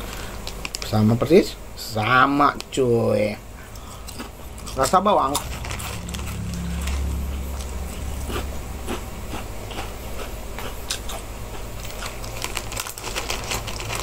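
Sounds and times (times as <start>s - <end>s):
crunching crispy snack: 0.0s - 1.3s, 4.2s - 14.0s.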